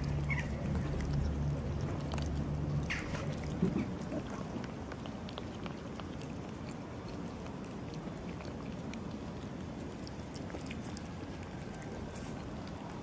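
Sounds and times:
low rumble: 0:00.0 - 0:04.6
cat chewing food: 0:00.0 - 0:13.0.

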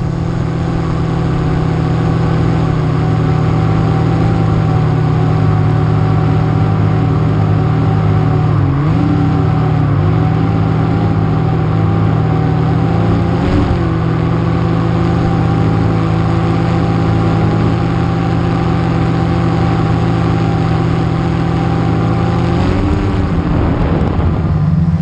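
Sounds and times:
drone motors humming: 0:00.0 - 0:25.0.

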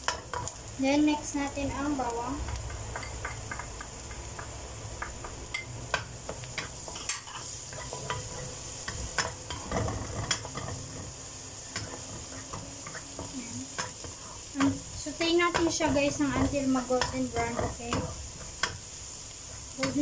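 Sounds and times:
onion and garlic sizzling in oil: 0:00.0 - 0:20.0
wooden spatula scraping pan: 0:06.6 - 0:18.6.

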